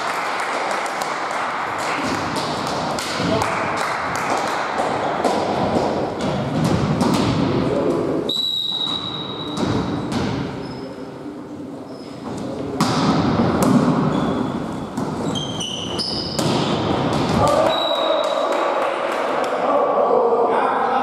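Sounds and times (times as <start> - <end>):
volleyball hits: 1.8 - 7.7, 8.8 - 10.6, 12.8 - 15.3, 16.0 - 18.8
players' voices: 1.8 - 8.3, 16.6 - 21.0
referee's whistle: 8.3 - 9.6, 17.6 - 18.4
shoe squeaks: 8.3 - 9.6, 10.6 - 11.0, 11.8 - 12.4, 14.1 - 16.4.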